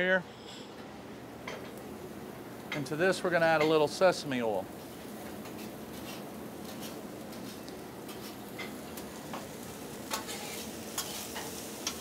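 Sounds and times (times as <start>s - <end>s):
food sizzling on a griddle: 2.8s - 12.0s.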